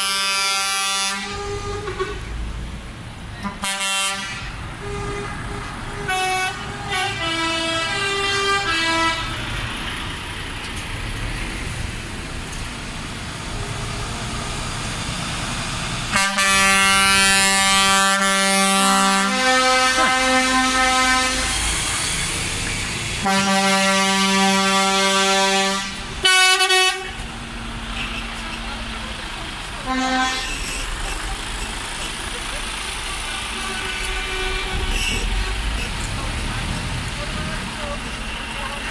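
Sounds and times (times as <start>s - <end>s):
lorry air horns: 0.0s - 2.3s, 3.4s - 9.4s, 16.1s - 22.3s, 23.2s - 27.2s, 29.8s - 30.8s, 32.8s - 35.7s
diesel truck engines rumbling: 0.0s - 38.9s.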